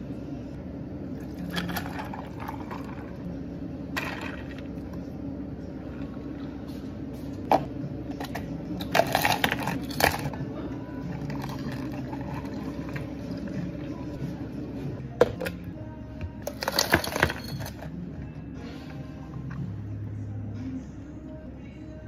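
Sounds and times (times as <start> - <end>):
low equipment hum: 0.0 - 22.0
cups and ice clattering: 1.2 - 3.2, 3.9 - 4.8, 7.5 - 10.4, 11.1 - 13.9, 16.4 - 17.9.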